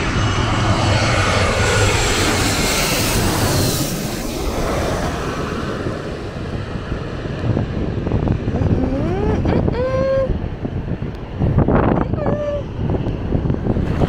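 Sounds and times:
jet airliner engine noise: 0.0s - 14.0s
wind buffeting the microphone: 0.0s - 14.0s
person calling out: 8.5s - 10.4s, 12.0s - 12.7s.

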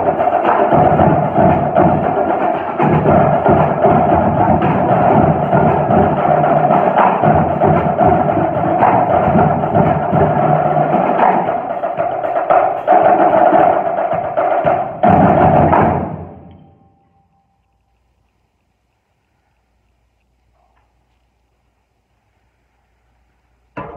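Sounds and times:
marching drum line playing: 0.0s - 16.5s.

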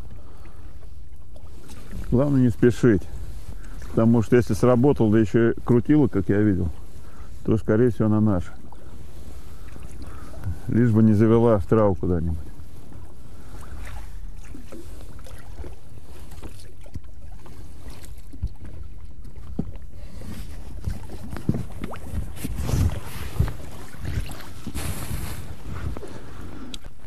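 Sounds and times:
water lapping around boat: 0.0s - 27.0s
float lifted out of water: 13.0s - 27.0s
knocks and rubs against rubber boat: 13.8s - 27.0s
wind on microphone: 17.7s - 27.0s.

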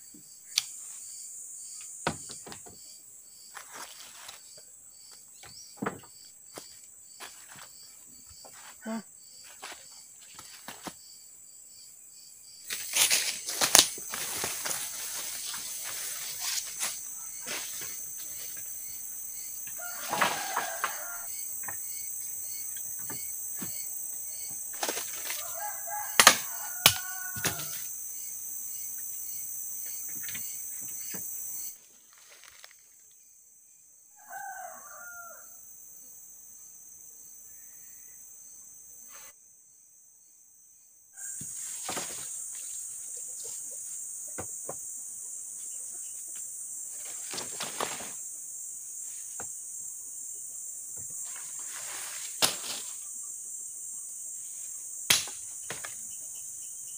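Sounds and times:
insects droning: 0.0s - 56.9s
wooden poles knocking: 5.4s - 6.2s
rustling in dry leaves: 12.7s - 18.6s, 31.8s - 33.0s, 41.5s - 43.6s, 47.0s - 48.2s, 51.2s - 53.1s
rooster crowing: 19.7s - 21.4s, 25.3s - 27.9s, 34.1s - 35.7s.

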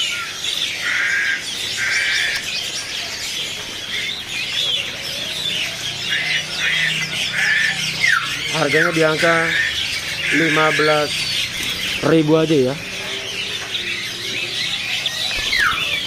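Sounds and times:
caged birds chirping: 0.0s - 16.0s
harsh buzzy bird squawks: 6.0s - 16.0s.

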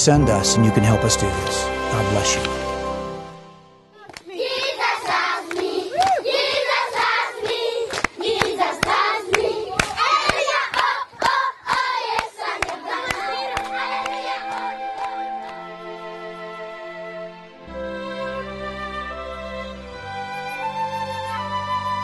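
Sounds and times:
background music with held notes: 0.0s - 5.6s, 12.6s - 22.0s
rhythmic clapping: 4.0s - 16.3s
children singing: 4.2s - 16.2s.

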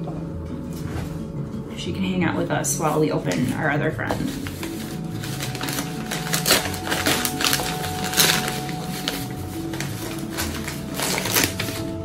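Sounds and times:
newspaper crinkling and rustling: 2.8s - 12.0s.

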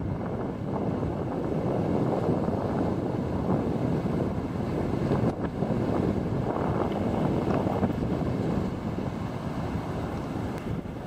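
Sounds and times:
wind buffeting microphone: 0.0s - 11.0s
small surf waves breaking: 1.4s - 11.0s.

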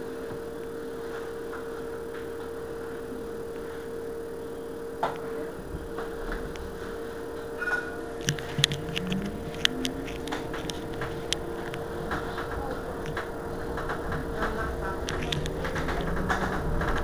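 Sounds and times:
electric bus humming: 0.0s - 17.0s
short rising tone: 7.6s - 8.1s.

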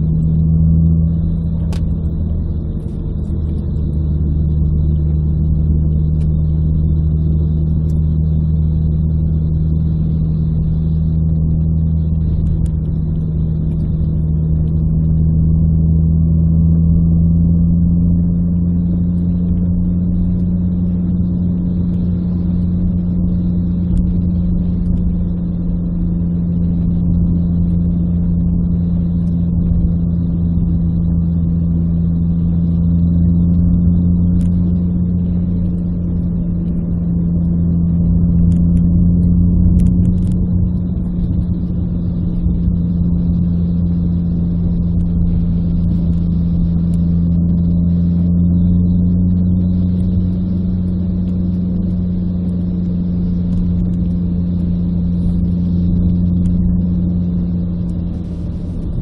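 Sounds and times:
car engine droning in cabin: 0.0s - 59.0s.

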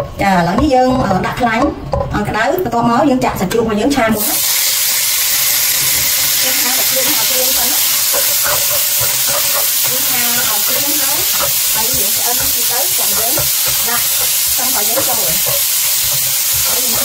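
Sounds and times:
meat sizzling in hot oil: 4.2s - 17.0s
spatula scraping a wok: 5.4s - 17.0s.

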